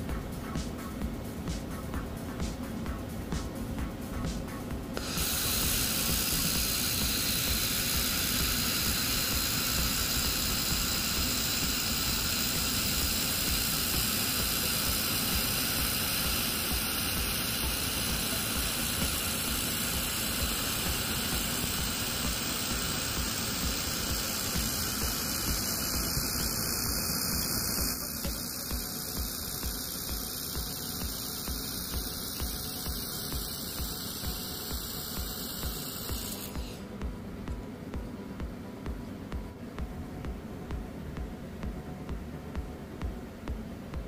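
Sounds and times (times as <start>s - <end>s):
laser welder hissing: 4.9s - 37.1s.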